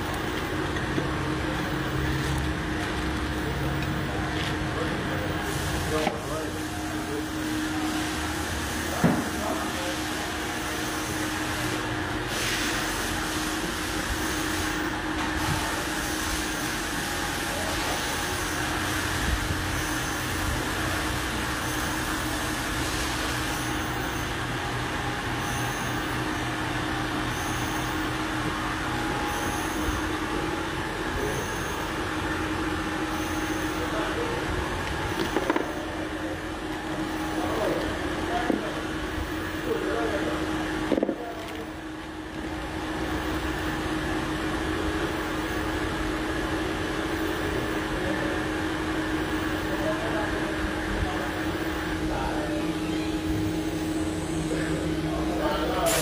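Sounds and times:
milling machine humming: 0.0s - 56.0s
machining noise: 27.1s - 40.4s.

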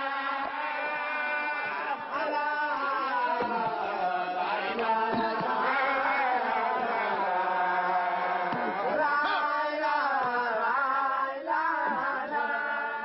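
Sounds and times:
voices chanting together: 0.0s - 13.0s.

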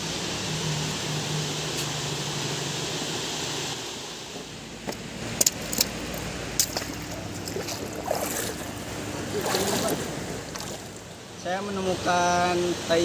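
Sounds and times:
river rushing over rocks: 0.0s - 13.0s
water sloshing from wading: 4.4s - 11.4s.

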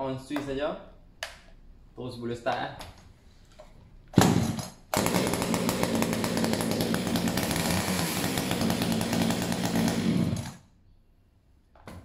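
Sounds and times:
chainsaw starting and running: 4.2s - 10.7s.

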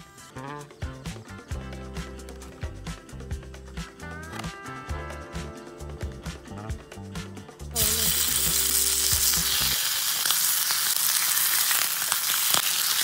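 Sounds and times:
bacon sizzling in frying pan: 7.8s - 13.0s.

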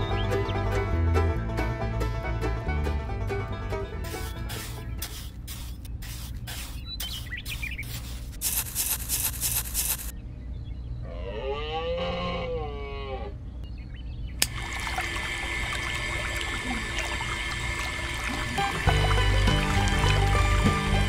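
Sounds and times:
sand scraping: 4.0s - 10.1s
low steady hum: 8.2s - 21.0s
moo-like call: 11.0s - 13.4s.

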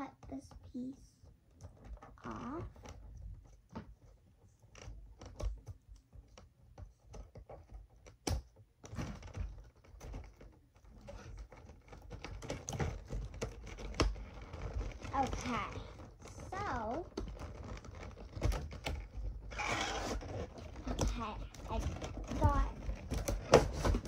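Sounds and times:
plastic rustling: 0.0s - 24.0s
plastic snapping: 7.1s - 15.1s.

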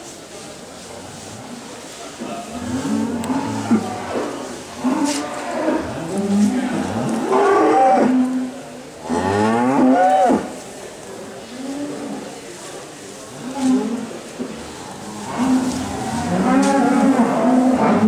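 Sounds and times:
cows mooing: 14.9s - 18.0s.

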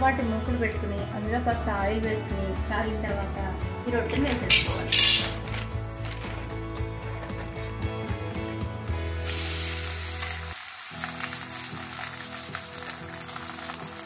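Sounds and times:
background music: 0.0s - 14.0s
oil sizzling in a pan: 9.2s - 14.0s.

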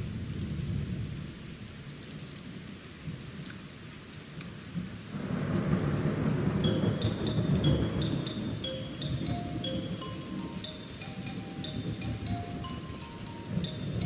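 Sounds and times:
faint hiss: 5.1s - 14.0s.

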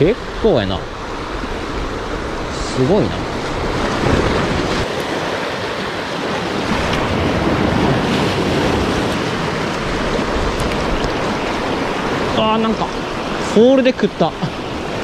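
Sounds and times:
sea waves washing ashore: 0.0s - 15.0s
wind on microphone: 1.3s - 13.4s.

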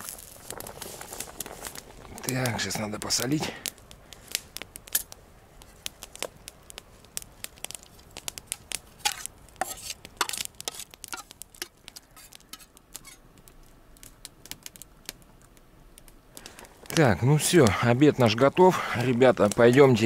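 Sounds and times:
campfire crackling: 0.0s - 20.0s
metal fork scraping metal pan: 9.0s - 13.2s.

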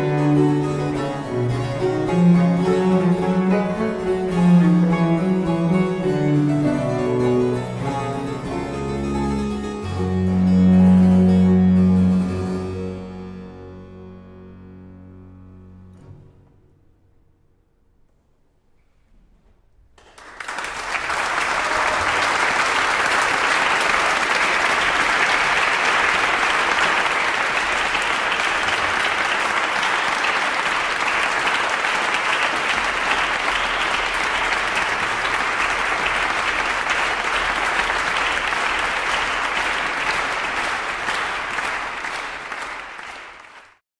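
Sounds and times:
audience applauding: 20.0s - 43.8s.

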